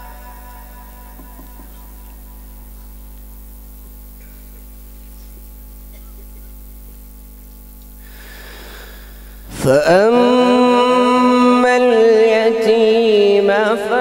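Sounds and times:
faint hiss: 0.0 - 9.9
electrical mains hum: 0.0 - 14.0.

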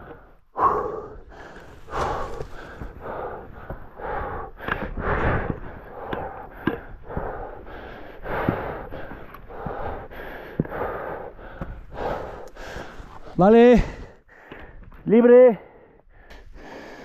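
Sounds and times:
person breathing hard: 0.0 - 15.0, 15.6 - 17.0.

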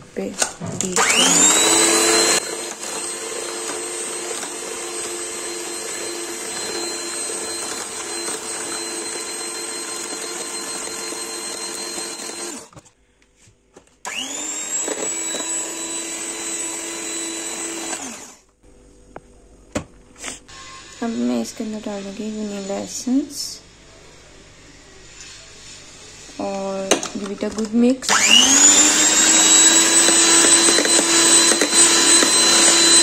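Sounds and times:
electric hand mixer whining: 0.9 - 12.8, 14.0 - 18.5, 20.5 - 23.2, 28.0 - 33.0.

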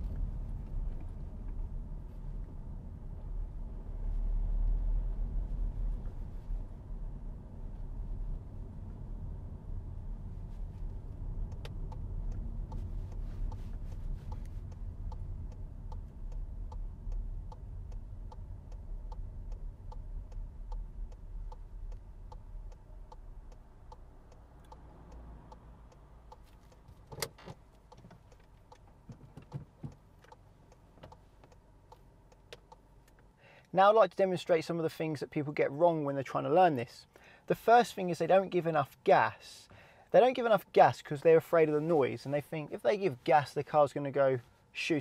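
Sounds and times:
car engine and road rumble: 0.0 - 45.0
gear stick clicks: 10.9 - 33.3
indicator ticking: 11.0 - 29.0
handbrake ratcheting: 26.4 - 30.4.

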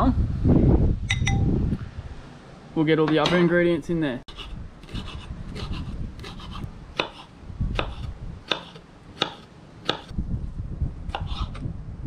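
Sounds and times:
knife chopping on cutting board: 4.4 - 10.1.

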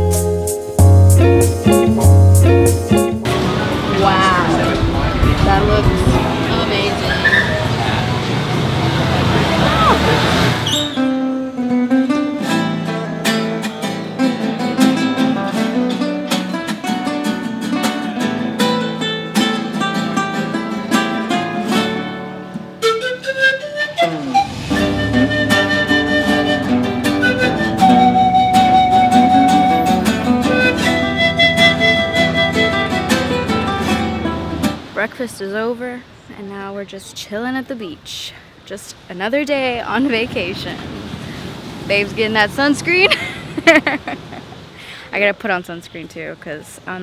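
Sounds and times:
pan flute melody: 0.0 - 5.2, 7.0 - 8.2, 9.4 - 15.2, 20.9 - 34.6
plucked acoustic guitar: 0.0 - 35.1.

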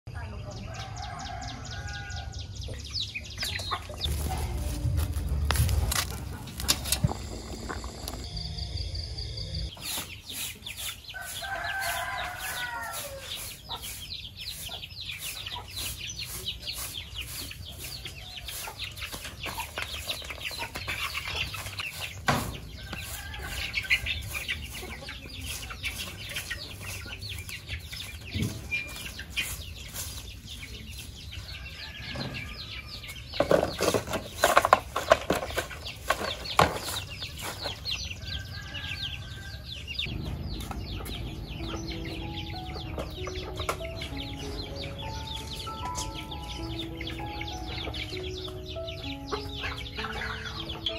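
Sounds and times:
broom sweeping yard: 0.2 - 8.6, 9.6 - 50.9
chickens clucking: 0.8 - 50.9
rooster crowing: 11.2 - 13.3.

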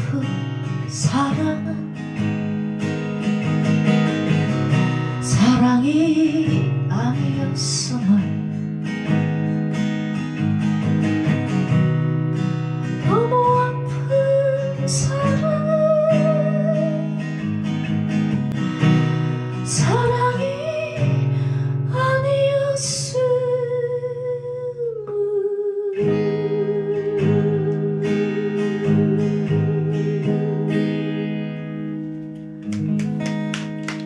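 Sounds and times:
woman singing wordless notes: 0.0 - 1.9, 5.2 - 8.3, 19.7 - 21.3, 21.9 - 30.9
acoustic guitar strumming: 0.0 - 25.2, 26.0 - 34.0.

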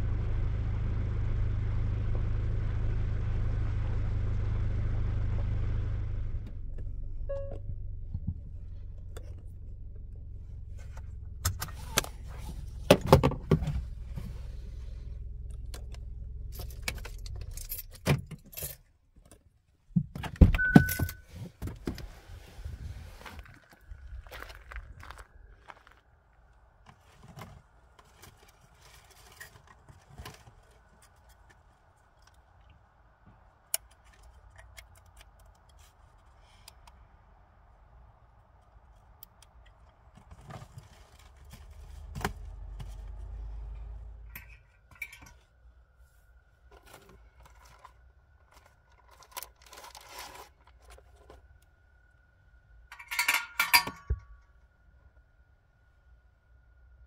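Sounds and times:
rustling: 26.8 - 32.2, 39.7 - 51.6
light clicks and scrapes: 26.9 - 32.8, 33.8 - 37.0, 44.3 - 51.6
metal chain clinking: 52.9 - 54.4.

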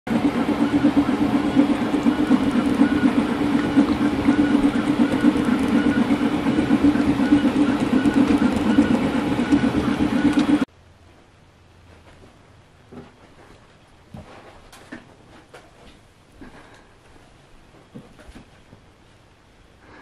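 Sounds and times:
three d printer mechanical drone: 0.1 - 10.7.

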